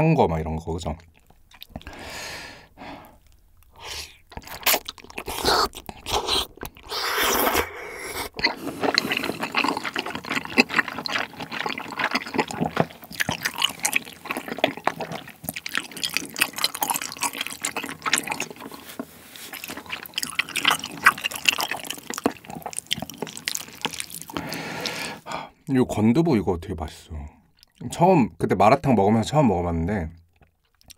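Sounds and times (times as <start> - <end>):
wet chewing: 0.9 - 25.8, 27.4 - 27.8, 30.2 - 30.9
noodle slurping: 1.1 - 25.5.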